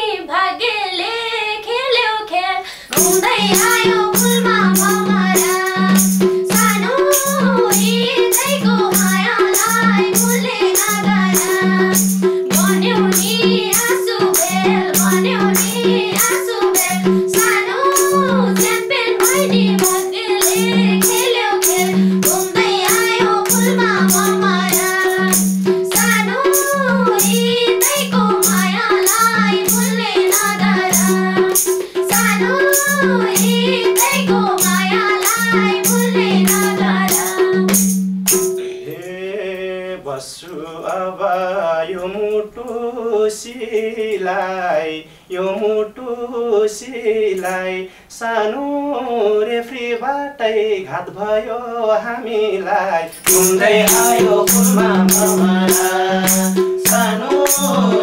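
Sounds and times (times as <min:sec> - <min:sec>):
woman singing: 0:00.0 - 0:37.9, 0:50.8 - 0:58.0
women singing melody: 0:00.0 - 0:50.2, 0:50.8 - 0:58.0
hand drum beat: 0:02.9 - 0:38.9, 0:53.2 - 0:58.0
fast percussion beat: 0:02.9 - 0:39.1, 0:53.1 - 0:58.0.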